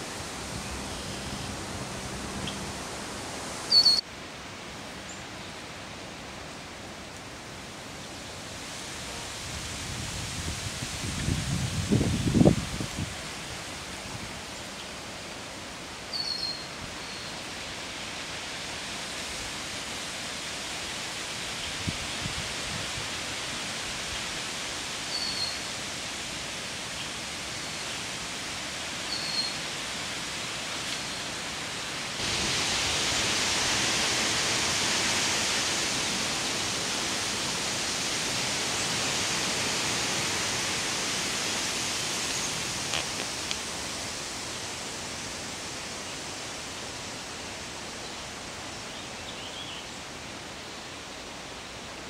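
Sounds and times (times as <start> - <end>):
rushing outdoor background noise: 0.0 - 52.0
high bird chirps: 3.7 - 4.0.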